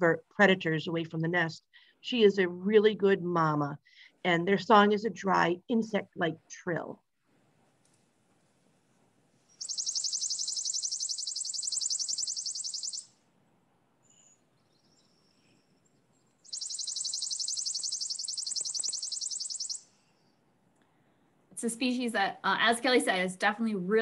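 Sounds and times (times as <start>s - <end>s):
bird trilling: 9.6s - 13.2s, 16.4s - 20.0s.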